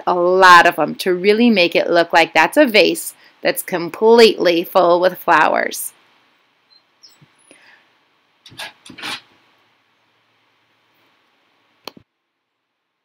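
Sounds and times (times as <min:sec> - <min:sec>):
pencil scratching on paper: 0:08.5 - 0:09.3.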